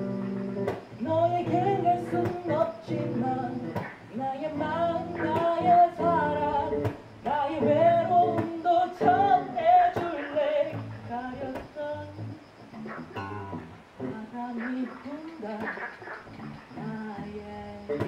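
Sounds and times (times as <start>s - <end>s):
electric bass guitar: 0.0s - 14.4s, 16.0s - 18.0s
man singing: 1.0s - 12.2s.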